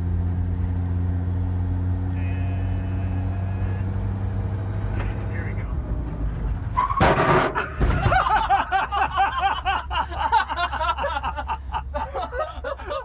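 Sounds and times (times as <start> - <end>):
people laughing hard: 7.6 - 13.0.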